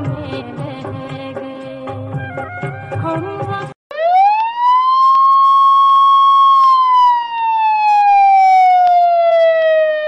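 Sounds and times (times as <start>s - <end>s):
siren wail: 3.9s - 10.0s.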